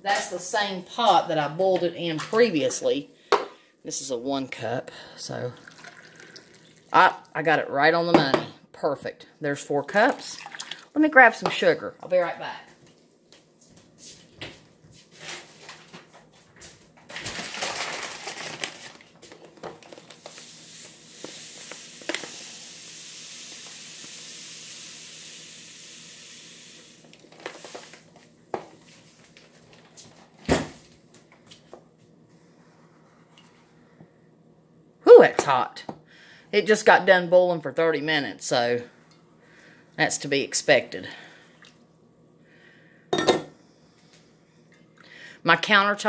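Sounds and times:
steady hiss: 0:20.2 - 0:28.1.

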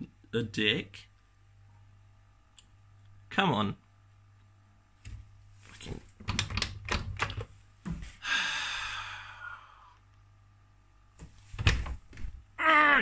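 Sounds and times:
washing machine door clicking: 0:06.2 - 0:07.5, 0:11.6 - 0:12.3
long sigh: 0:08.2 - 0:10.0.

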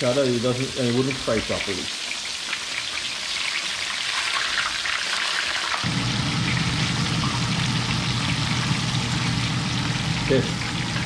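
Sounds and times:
fish sizzling in hot oil: 0:00.5 - 0:11.0
low steady rumble: 0:05.9 - 0:11.0.

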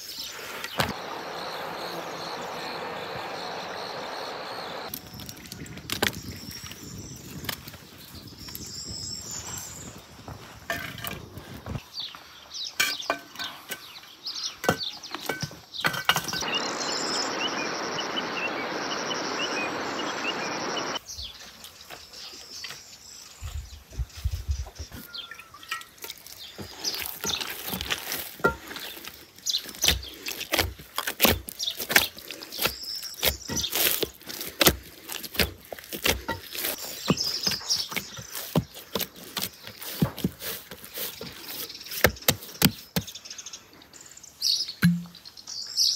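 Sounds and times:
steady hiss: 0:00.0 - 0:04.9, 0:16.4 - 0:21.0.

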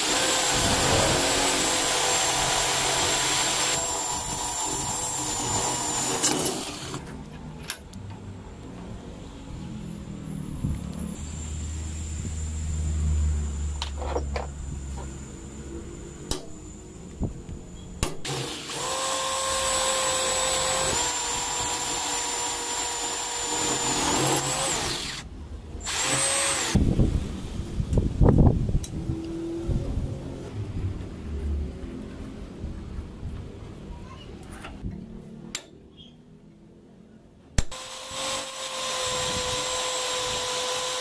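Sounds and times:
power drill boring into steel: 0:00.0 - 0:07.0, 0:18.2 - 0:26.8, 0:37.6 - 0:41.0.

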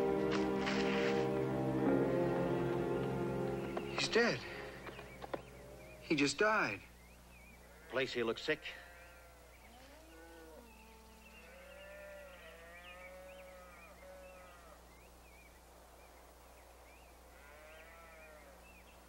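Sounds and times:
steady low hum: 0:01.2 - 0:07.8
cattle mooing: 0:08.8 - 0:14.8.

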